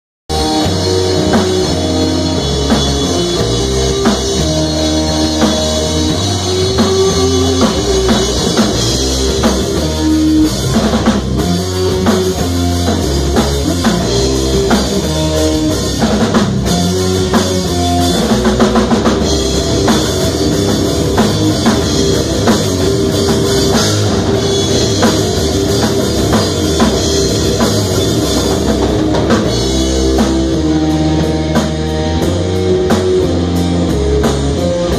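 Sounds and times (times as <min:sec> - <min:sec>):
drum kit beat: 0:00.3 - 0:34.9
live rock band playing: 0:00.3 - 0:34.9.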